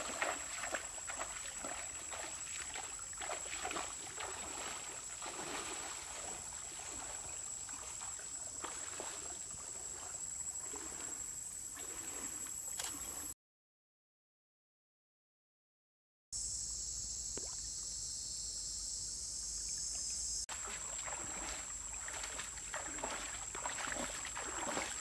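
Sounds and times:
stream flowing: 0.0 - 13.3, 20.5 - 25.0
water sloshing from wading: 0.0 - 13.3, 20.5 - 25.0.

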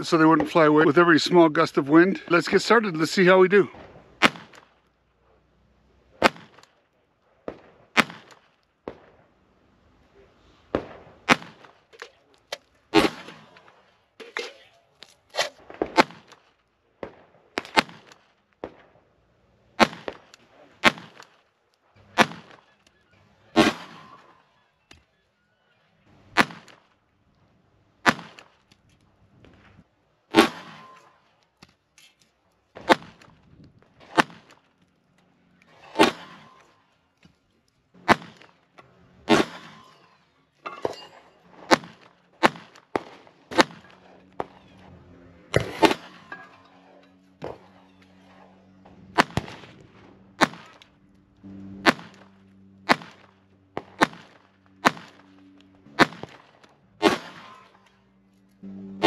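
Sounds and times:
pistol shots: 3.6 - 4.8, 6.2 - 6.8, 7.4 - 9.2, 10.7 - 12.2, 12.9 - 13.9, 15.3 - 19.0, 19.8 - 21.4, 22.0 - 22.8, 23.4 - 24.5, 26.3 - 26.9, 28.0 - 28.6, 30.3 - 31.2, 32.7 - 33.3, 34.0 - 34.6, 35.7 - 36.8, 38.0 - 38.6, 39.2 - 51.0, 51.7 - 57.8.

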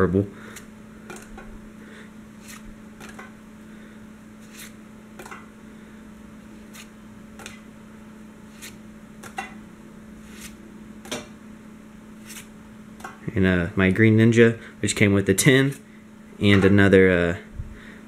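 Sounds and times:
steady low hum: 0.0 - 18.0
cards flicking against cards: 2.4 - 3.3, 6.7 - 7.6, 8.5 - 9.5.

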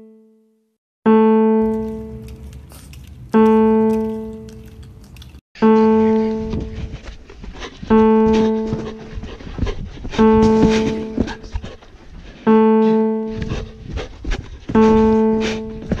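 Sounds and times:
low piano note ringing: 1.1 - 2.5, 3.4 - 4.7, 5.6 - 6.8, 12.5 - 13.6, 14.8 - 16.0
dog panting: 6.0 - 16.0.

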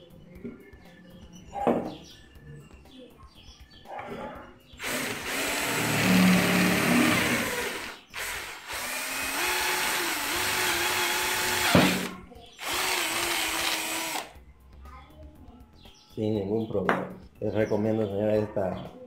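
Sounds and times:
cordless drill boring through wood: 4.8 - 14.4.

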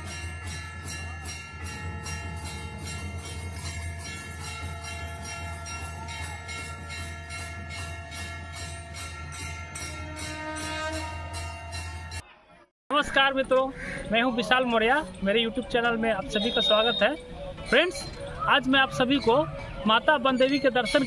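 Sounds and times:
brass bells ringing rapidly: 0.0 - 12.2, 12.9 - 21.0.

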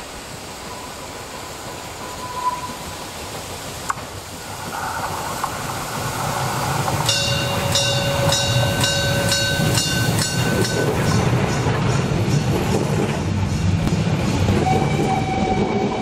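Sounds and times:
steam train low rumble: 0.0 - 16.0
steady high squeal: 0.6 - 3.3
steam locomotive regular beat: 5.4 - 16.0.

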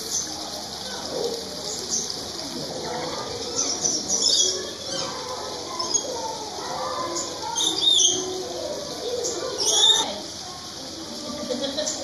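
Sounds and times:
small waterfall splashing into pond: 0.0 - 12.0
birds chirping: 3.3 - 6.3, 7.0 - 10.1.

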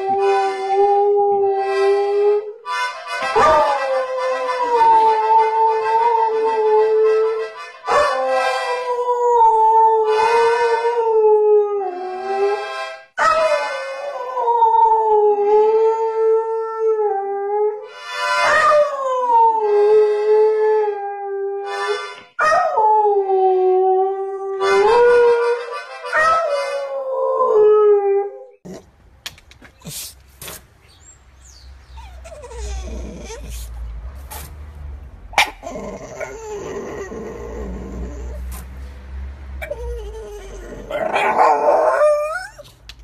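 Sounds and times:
dog howling: 35.6 - 38.4, 39.6 - 42.6.

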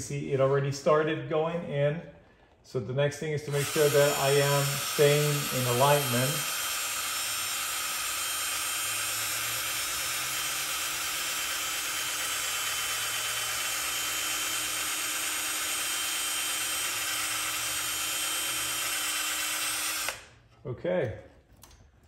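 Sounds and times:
electric drill boring into metal: 3.5 - 20.4.

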